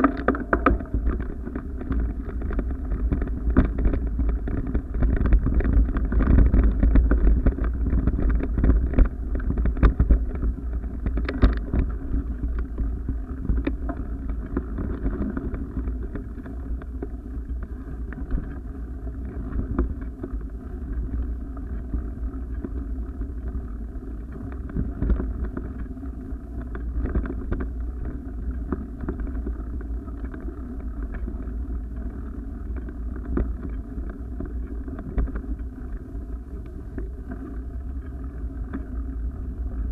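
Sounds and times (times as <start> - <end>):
camera knocks and rattles: 0.0 - 18.5
wind buffeting microphone: 0.0 - 39.9.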